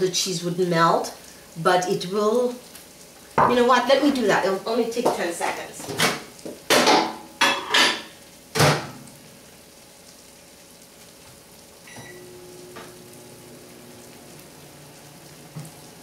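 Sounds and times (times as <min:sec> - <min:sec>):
microwave oven humming: 0:08.1 - 0:16.0
short beep: 0:11.9 - 0:12.3.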